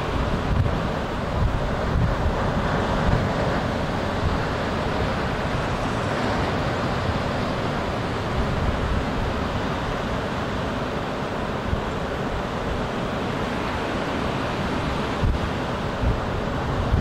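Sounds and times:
ocean surf: 0:00.0 - 0:17.0
wind buffeting microphone: 0:00.0 - 0:17.0.

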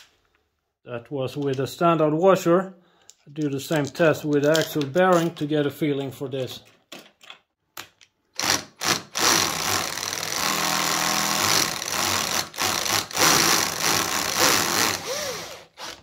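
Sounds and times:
cordless drill running: 0:08.4 - 0:16.0.

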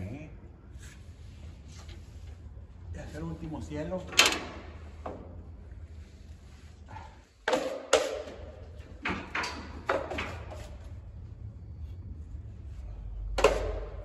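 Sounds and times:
drywall tools clacking and scraping: 0:07.4 - 0:10.8
low steady hum: 0:08.2 - 0:14.0.

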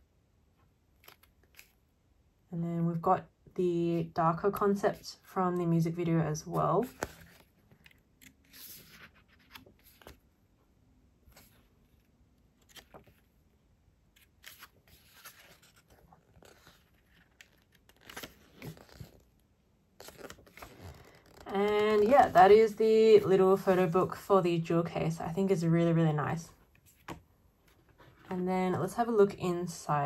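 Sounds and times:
book pages turning: 0:00.9 - 0:01.8, 0:06.4 - 0:10.4, 0:11.2 - 0:13.4, 0:14.1 - 0:19.4, 0:20.0 - 0:24.0, 0:26.7 - 0:28.4.

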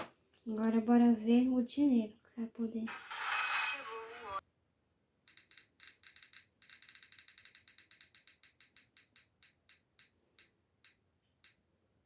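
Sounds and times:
roulette wheel app ticking: 0:05.3 - 0:11.7.

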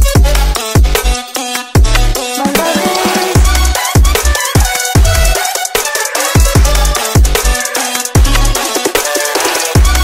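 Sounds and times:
heavy bass kick drums: 0:00.0 - 0:01.0, 0:01.8 - 0:05.4, 0:06.4 - 0:07.5.

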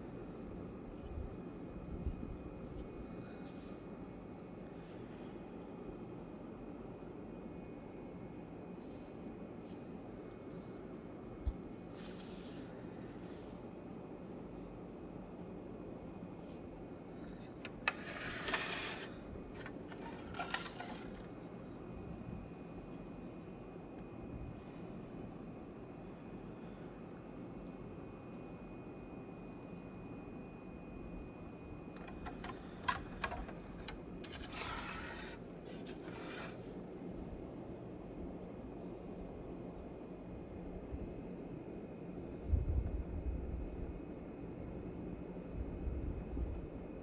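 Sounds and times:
faint background hum: 0:00.0 - 0:47.0
plastic clicks: 0:17.5 - 0:21.3, 0:32.0 - 0:36.6
rubbing and scraping: 0:17.6 - 0:21.3, 0:32.0 - 0:36.6.

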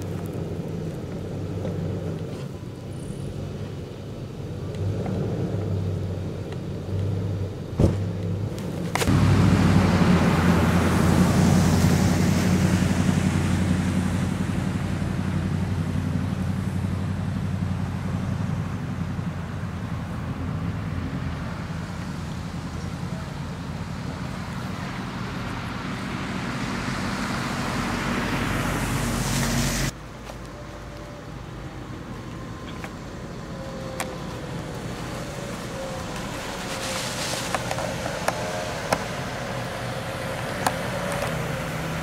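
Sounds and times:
tyres clicking on packed snow: 0:00.0 - 0:02.9, 0:33.8 - 0:42.0
car engine and tyre noise: 0:00.0 - 0:42.0.

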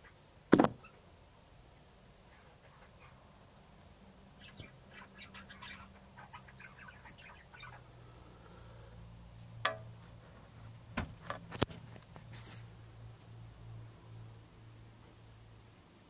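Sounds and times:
low steady hum: 0:00.0 - 0:16.0
budgerigar chirping: 0:04.4 - 0:08.0.

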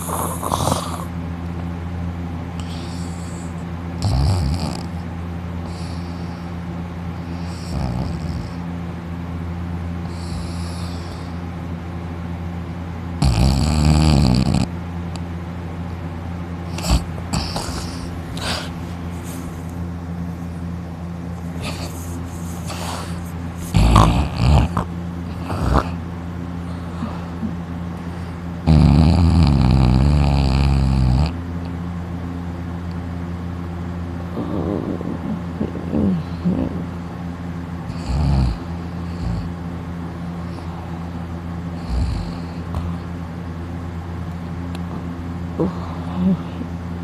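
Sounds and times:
person snoring: 0:00.0 - 0:01.2, 0:02.6 - 0:05.0, 0:07.4 - 0:08.6, 0:10.0 - 0:11.4, 0:13.2 - 0:14.7, 0:16.7 - 0:18.8, 0:21.6 - 0:26.0, 0:28.6 - 0:31.4, 0:34.3 - 0:37.0
steady low hum: 0:00.0 - 0:47.0
soft breaths: 0:21.3 - 0:24.0.

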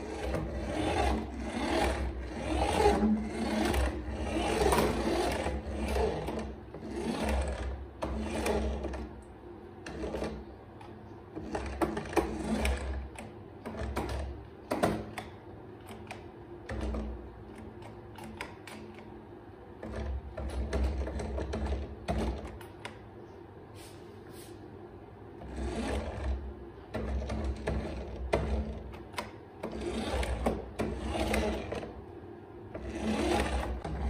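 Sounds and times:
toy motor and gearbox whirring: 0:00.0 - 0:09.0, 0:29.7 - 0:31.9, 0:32.8 - 0:34.0.

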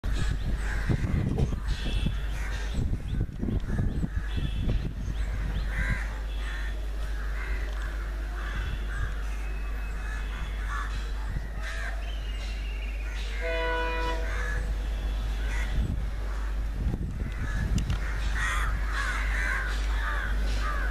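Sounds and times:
steady low rumble: 0:00.0 - 0:20.9
crows cawing: 0:05.4 - 0:09.4, 0:10.0 - 0:12.0, 0:13.1 - 0:14.7, 0:15.4 - 0:20.9
short horn note: 0:13.4 - 0:14.4.

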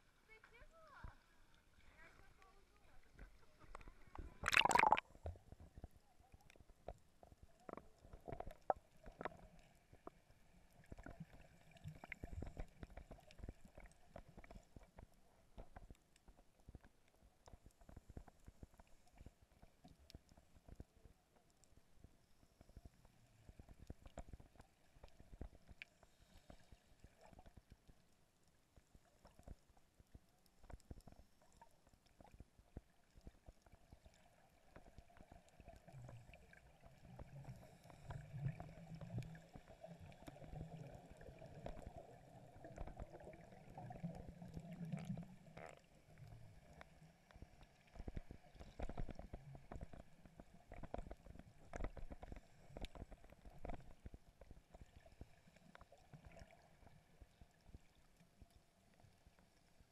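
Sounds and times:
underwater clicks: 0:03.7 - 0:05.0
underwater bubbling rumble: 0:03.7 - 0:05.9, 0:34.6 - 0:57.8.

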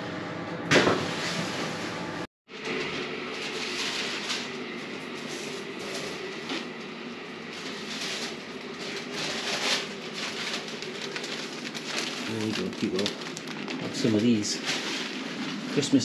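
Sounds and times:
bakery machinery hum: 0:00.0 - 0:16.0
papery rustles: 0:07.4 - 0:16.0.

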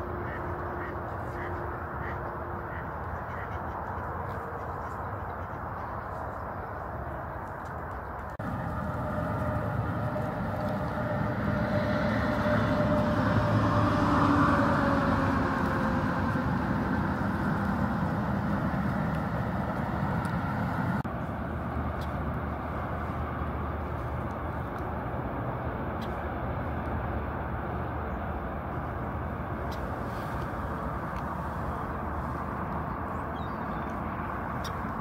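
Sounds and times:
engine noise: 0:00.0 - 0:35.0
faint hum sinking in pitch: 0:08.4 - 0:20.9.

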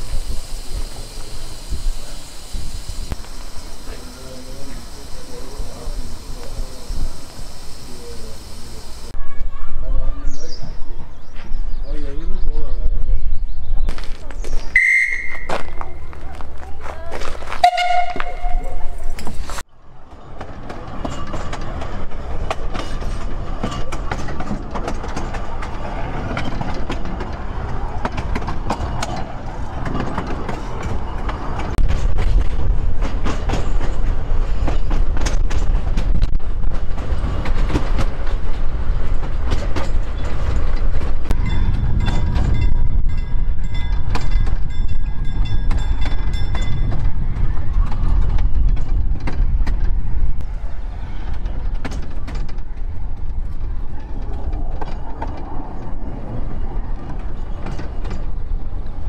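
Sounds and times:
train wheels clicking over rail joints: 0:00.0 - 0:09.2, 0:17.2 - 0:59.0.

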